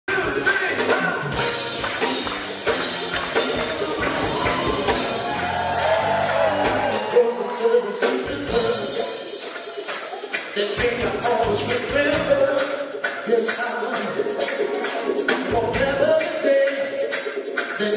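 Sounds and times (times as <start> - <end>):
band with keyboards: 0.1 - 17.9
vocal group singing in harmony: 3.7 - 10.4.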